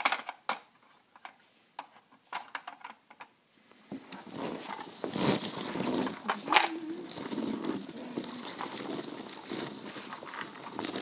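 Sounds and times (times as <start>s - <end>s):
plastic toys clicking: 0.0s - 3.3s, 6.0s - 11.0s
rustling handling noise: 0.0s - 11.0s.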